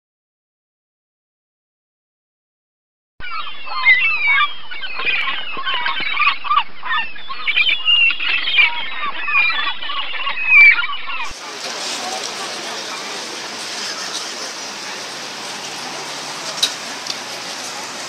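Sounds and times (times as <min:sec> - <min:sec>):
gulls squawking: 0:03.2 - 0:18.0
street hubbub: 0:10.6 - 0:18.0.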